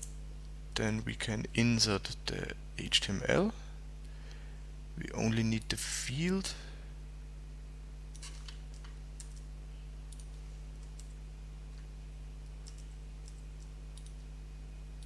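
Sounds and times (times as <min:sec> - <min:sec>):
low electrical hum: 0:00.0 - 0:15.0
mouse and keyboard clicks: 0:08.1 - 0:09.4.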